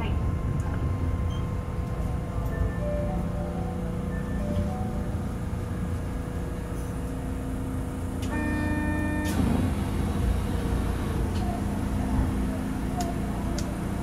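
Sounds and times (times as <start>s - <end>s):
train rumbling: 0.0s - 14.0s
click: 13.0s - 13.7s.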